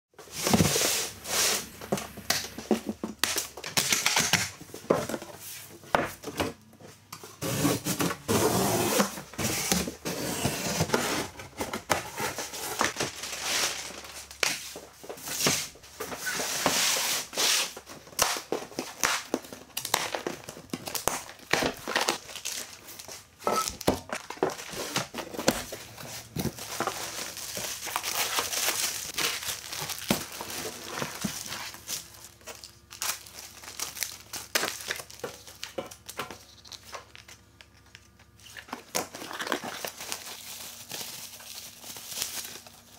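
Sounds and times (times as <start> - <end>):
plastic sheeting crinkling: 12.8 - 14.9, 26.1 - 35.6
packaging tearing: 26.3 - 37.4, 38.4 - 42.9.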